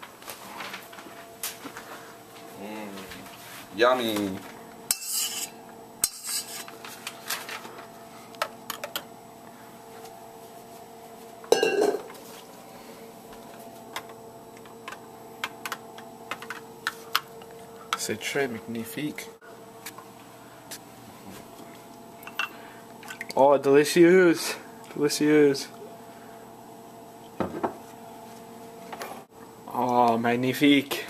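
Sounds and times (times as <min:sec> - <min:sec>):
faint steady hum: 0:00.0 - 0:31.0
metal spoon scraping glass bowl: 0:04.9 - 0:06.7.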